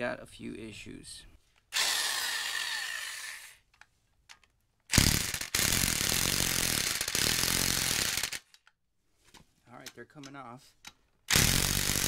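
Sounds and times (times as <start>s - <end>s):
impact wrench hammering: 4.9s - 8.4s, 11.3s - 12.0s.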